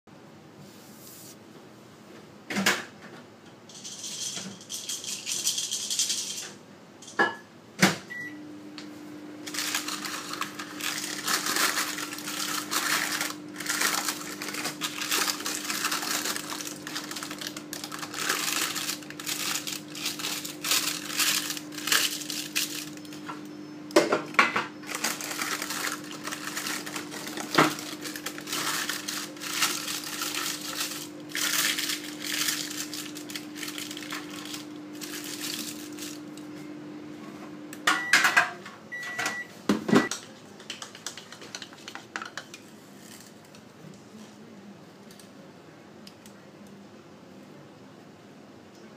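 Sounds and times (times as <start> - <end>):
paper and foil crinkling: 9.4 - 23.2, 24.8 - 36.3.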